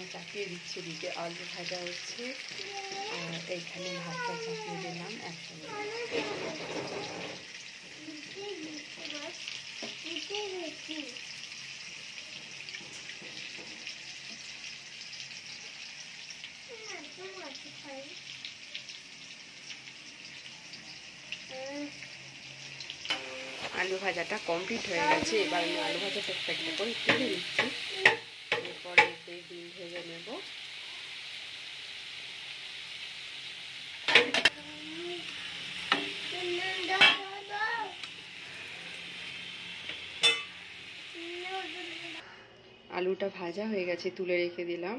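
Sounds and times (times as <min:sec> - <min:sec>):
potatoes sizzling in oil: 0:00.0 - 0:42.4
utensil knocking on pan: 0:27.0 - 0:29.2.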